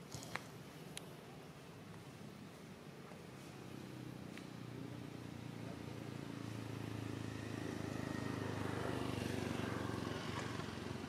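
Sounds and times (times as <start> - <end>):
vehicle engine passing by: 3.3 - 11.0.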